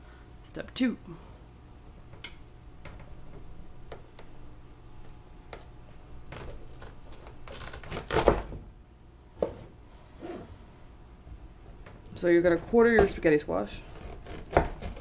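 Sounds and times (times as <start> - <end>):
knife cutting squash crunch: 6.4 - 8.4, 13.9 - 15.0.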